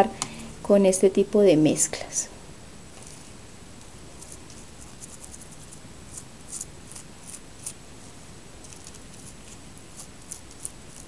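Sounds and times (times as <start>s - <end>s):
low hiss: 0.0s - 11.0s
toothbrush scrubbing leaves: 4.2s - 7.8s, 8.6s - 11.0s.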